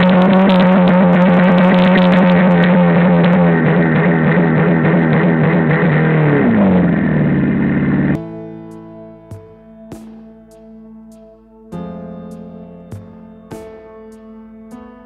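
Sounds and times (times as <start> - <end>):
soft piano music: 0.0 - 5.8, 8.1 - 15.0
car engine at high revs: 0.0 - 8.2.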